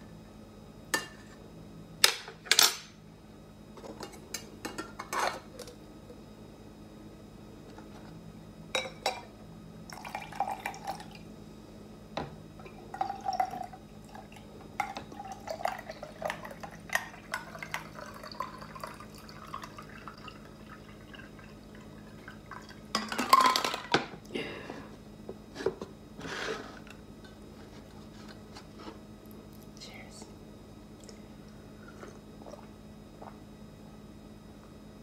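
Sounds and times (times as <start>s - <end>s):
drink pouring into metal mug: 9.9s - 11.1s, 12.9s - 23.2s
liquid dripping: 31.0s - 31.2s.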